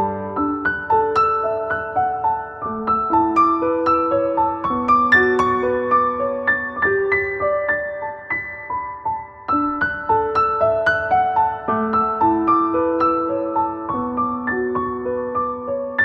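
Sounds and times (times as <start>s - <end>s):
soft piano music: 0.0s - 16.0s.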